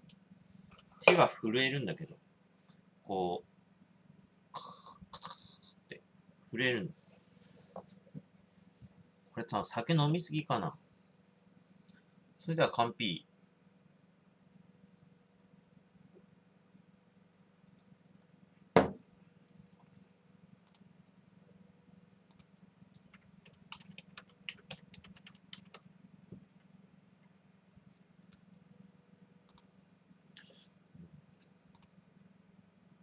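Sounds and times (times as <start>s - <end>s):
sharp knock: 18.8s - 19.0s
typing on computer keyboard: 22.3s - 25.9s.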